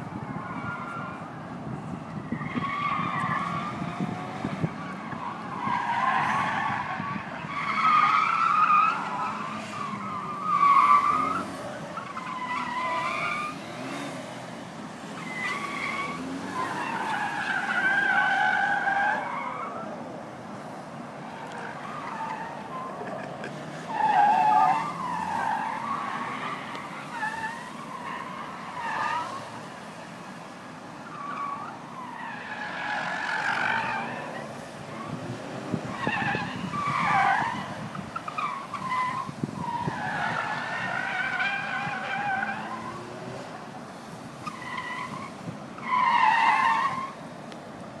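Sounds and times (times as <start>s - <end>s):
car engines running: 0.0s - 48.0s
tyres squealing: 4.8s - 14.1s, 44.4s - 47.2s.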